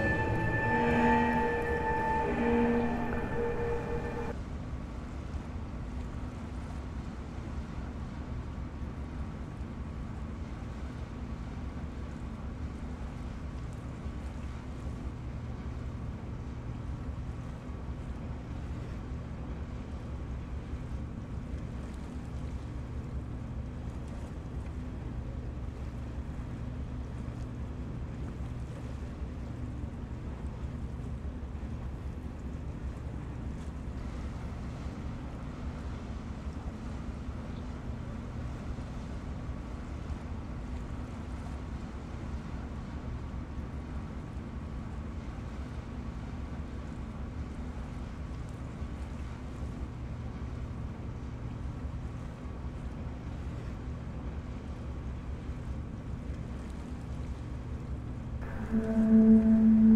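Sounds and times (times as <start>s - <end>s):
boat engine droning: 0.0s - 4.4s, 58.4s - 59.9s
faint higher hum: 0.0s - 4.4s, 58.4s - 59.9s
wind: 0.0s - 59.9s.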